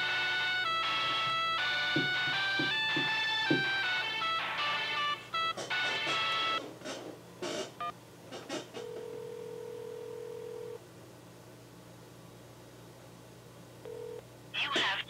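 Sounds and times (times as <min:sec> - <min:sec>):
phone ringback tone: 0:00.0 - 0:06.6, 0:08.8 - 0:10.8, 0:13.9 - 0:14.2.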